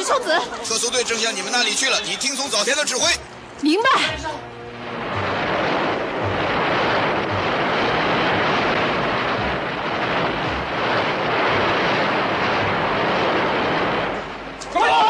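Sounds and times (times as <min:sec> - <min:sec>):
wave crashing and surging: 0:00.0 - 0:15.0
faint low thuds: 0:04.1 - 0:14.7.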